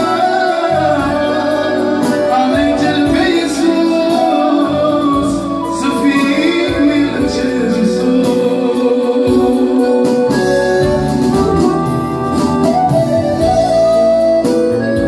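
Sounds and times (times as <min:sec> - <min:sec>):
man singing into microphone: 0:00.0 - 0:10.7
keyboard organ-like chords: 0:00.0 - 0:15.0.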